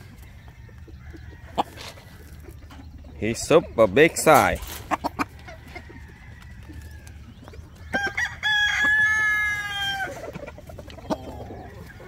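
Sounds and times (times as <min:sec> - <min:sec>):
rooster crowing: 0:07.9 - 0:10.2.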